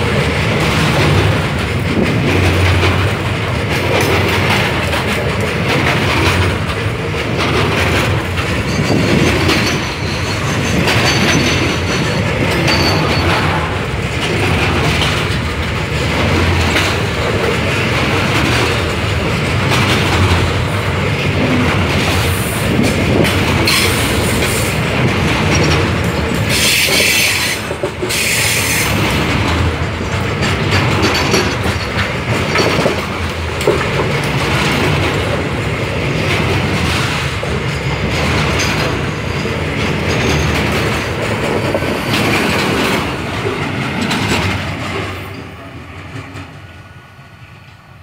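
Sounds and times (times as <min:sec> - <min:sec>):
train wheels rumbling and clattering: 0:00.0 - 0:48.0
high wheel squeal: 0:08.6 - 0:13.8.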